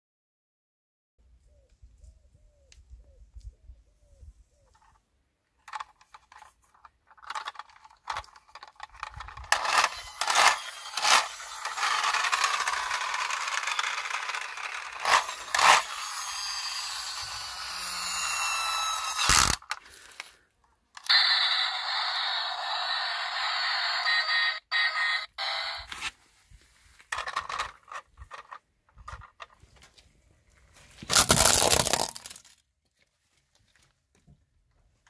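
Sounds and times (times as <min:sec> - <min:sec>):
sharp plastic clacks: 0:05.6 - 0:15.9
plastic toy scraping on grit: 0:07.2 - 0:19.8, 0:31.0 - 0:32.5.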